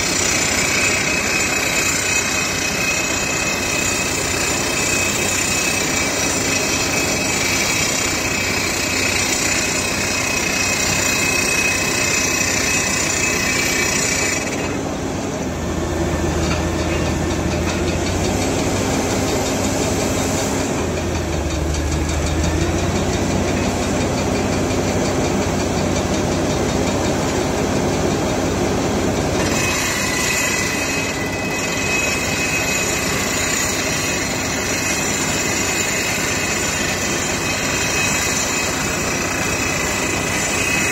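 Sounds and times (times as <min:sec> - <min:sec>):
engine running: 0:05.8 - 0:35.4.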